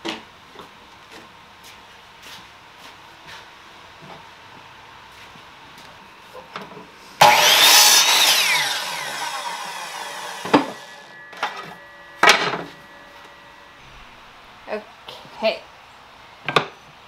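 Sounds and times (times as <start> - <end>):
miter saw cutting wood: 7.2 - 13.8
saw blade spinning down: 7.2 - 13.8.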